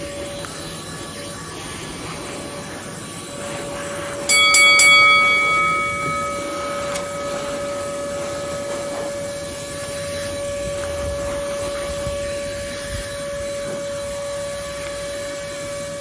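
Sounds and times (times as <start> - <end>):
wet dry vacuum running: 0.0 - 16.0
ringing tone: 4.3 - 10.2.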